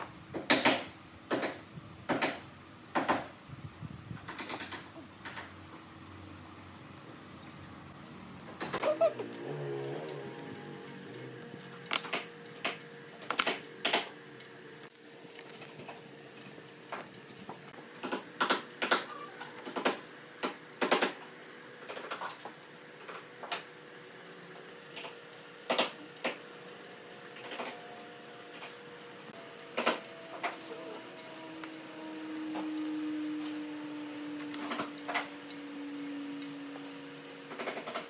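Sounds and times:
low drone: 0:08.8 - 0:11.9, 0:27.4 - 0:37.4.

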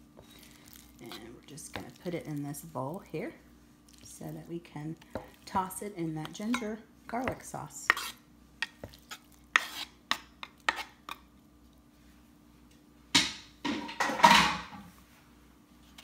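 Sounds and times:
knife scraping and tapping cutting board: 0:07.9 - 0:09.0, 0:09.6 - 0:11.2.

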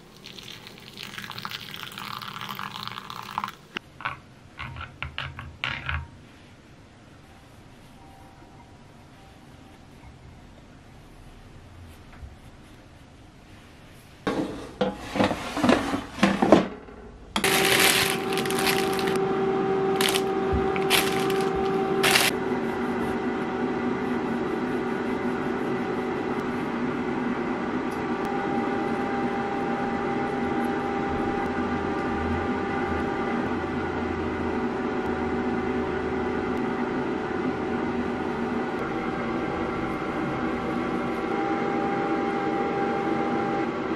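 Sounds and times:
oven humming: 0:13.4 - 0:43.9
plastic bag rustling: 0:17.4 - 0:19.2, 0:20.0 - 0:22.4.

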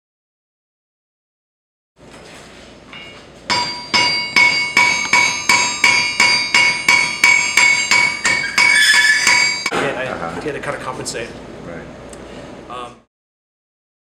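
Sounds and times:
hammer striking iron on anvil: 0:02.9 - 0:09.8.

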